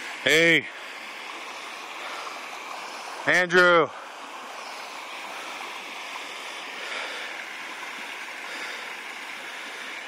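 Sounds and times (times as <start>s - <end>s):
creek water rushing over stones: 0.0s - 10.0s.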